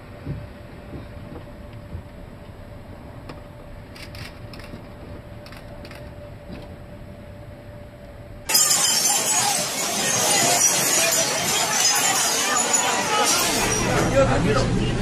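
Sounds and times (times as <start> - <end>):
faint constant hum: 0.0 - 15.0
ship structure creaking and clicking: 3.2 - 6.7.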